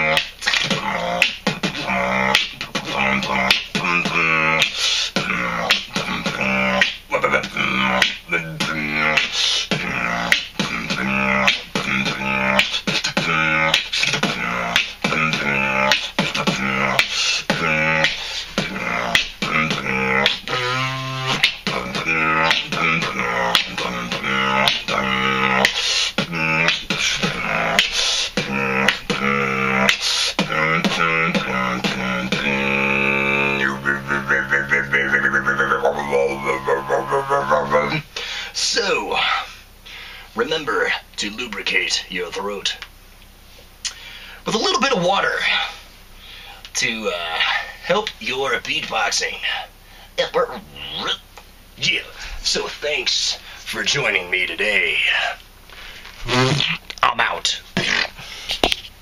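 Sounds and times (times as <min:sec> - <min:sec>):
man beatboxing: 0:00.0 - 0:39.6, 0:46.6 - 0:55.4, 0:56.2 - 0:58.9
hummed vocal notes: 0:00.0 - 0:40.0, 0:50.3 - 0:55.4, 0:56.2 - 0:56.8.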